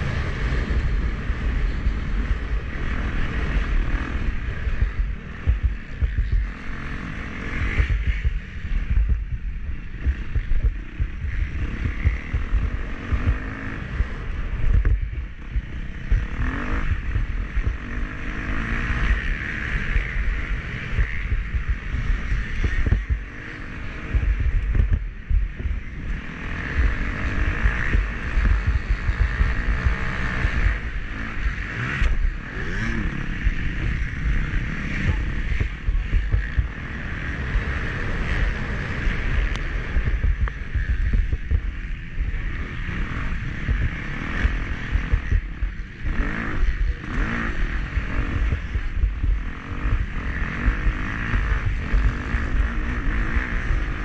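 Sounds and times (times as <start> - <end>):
dirt bike engine revving: 0.0 - 54.0
wind buffeting on microphone: 20.1 - 52.9.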